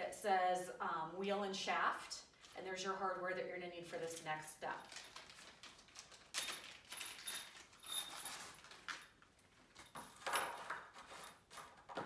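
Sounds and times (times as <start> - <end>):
plastic bag rustling: 4.8 - 9.7
bolts and nuts clinking: 4.8 - 11.9.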